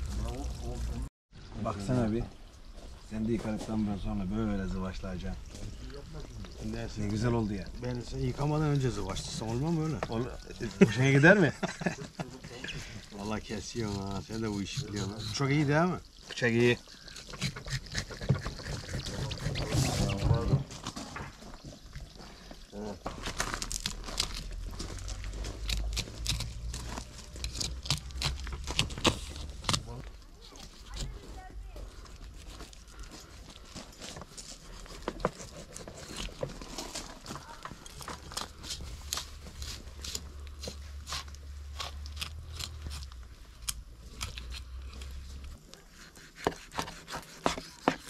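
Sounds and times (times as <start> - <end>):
knife scraping fish: 13.2 - 15.8, 16.8 - 20.5, 23.6 - 31.2, 32.0 - 48.0.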